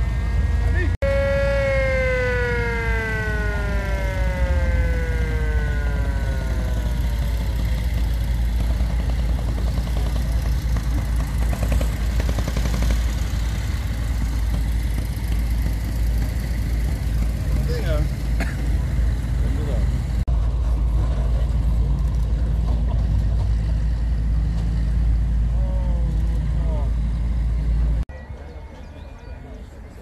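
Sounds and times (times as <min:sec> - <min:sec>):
ambulance siren winding down: 0:00.0 - 0:08.6
low rumble of engine and wind: 0:00.0 - 0:30.0.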